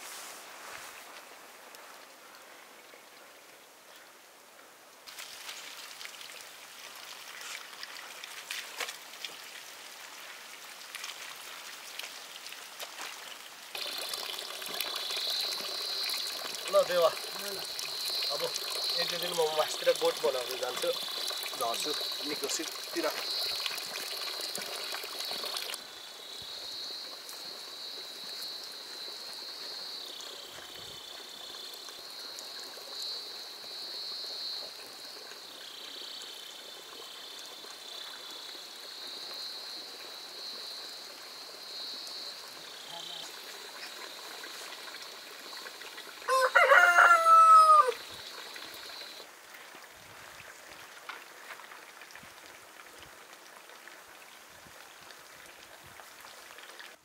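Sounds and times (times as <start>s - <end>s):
rooster crowing: 46.3s - 48.0s.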